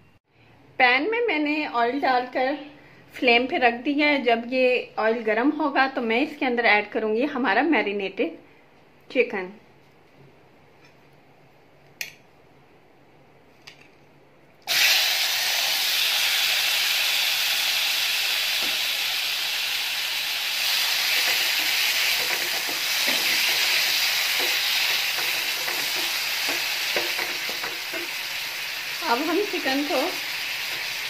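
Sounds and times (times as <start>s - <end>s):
chicken sizzling in hot oil: 14.7s - 31.0s
wooden spatula stirring in pan: 21.0s - 28.4s.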